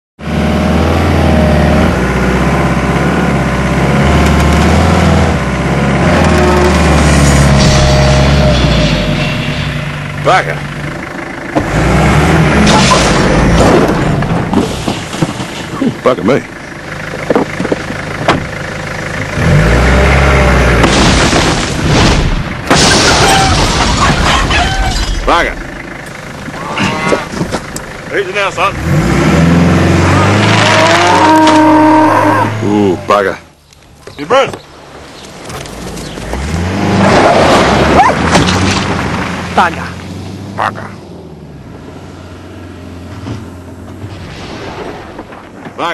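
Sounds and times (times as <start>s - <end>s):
engine revving hard: 0.2s - 9.1s, 11.6s - 14.2s, 19.4s - 21.3s, 28.4s - 33.0s
truck engine running: 0.2s - 45.9s
loud crash: 7.0s - 10.2s, 12.5s - 15.8s, 20.8s - 25.5s, 43.9s - 45.9s
wooden shed creaking and breaking: 12.6s - 16.0s, 20.8s - 25.4s, 37.3s - 39.6s.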